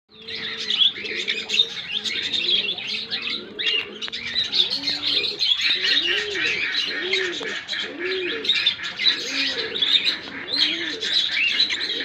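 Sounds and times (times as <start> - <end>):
low cooing notes: 0.1 - 12.0
small birds chirping: 0.1 - 12.0.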